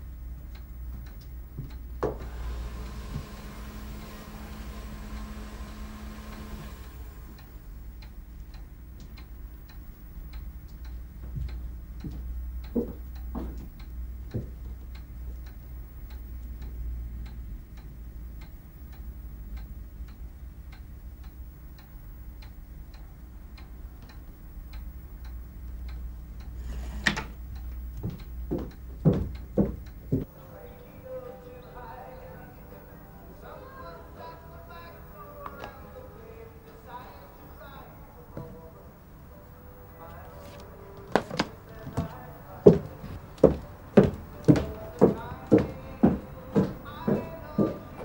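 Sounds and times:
clock ticking: 0.0 - 26.6, 27.4 - 30.3
low hum: 0.0 - 48.0.

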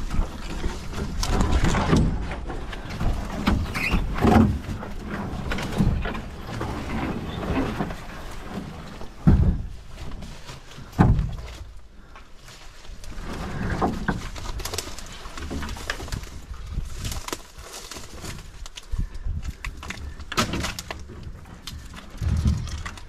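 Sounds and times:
footsteps through brush: 14.2 - 20.3.

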